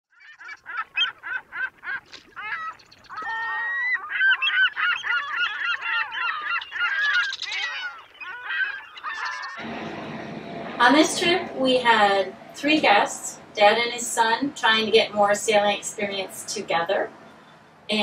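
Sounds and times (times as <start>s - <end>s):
geese honking: 0.3s - 9.7s.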